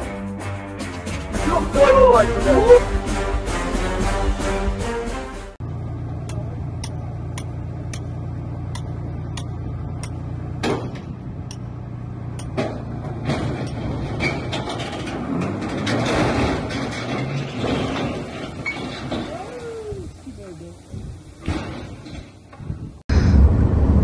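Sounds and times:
truck engine running: 2.9 - 19.0
truck clattering down slope: 6.0 - 22.9.

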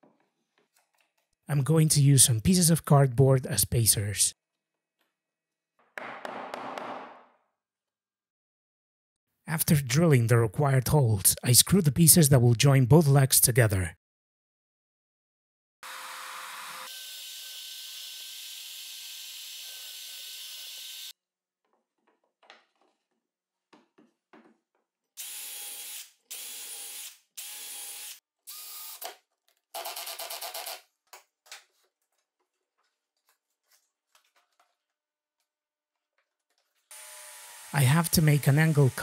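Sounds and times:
power drill boring plywood: 36.9 - 39.0.

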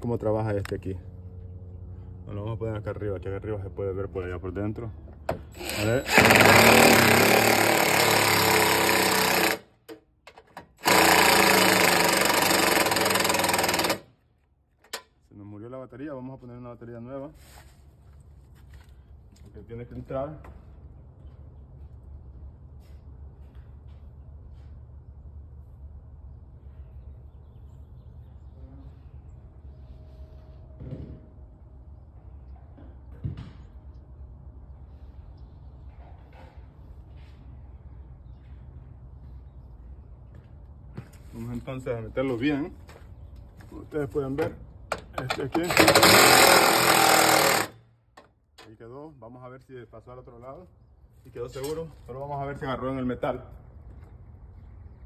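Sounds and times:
low outdoor background rumble: 0.0 - 55.0
impact driver hammering: 5.3 - 14.1, 44.9 - 48.3.

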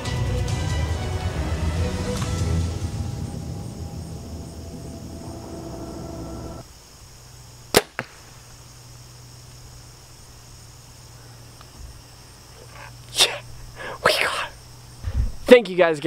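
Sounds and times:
background music: 0.0 - 6.6.

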